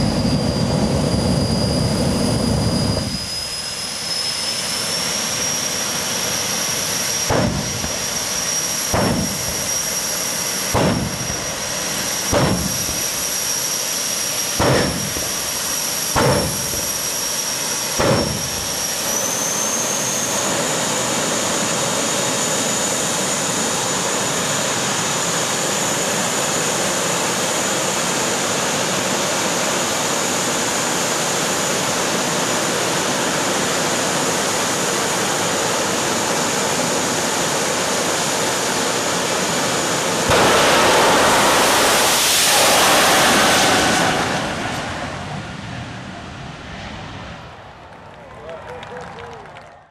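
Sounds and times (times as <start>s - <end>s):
jet engine whine: 0.0s - 49.9s
loud afterburner blasts: 4.8s - 21.6s, 40.0s - 48.0s.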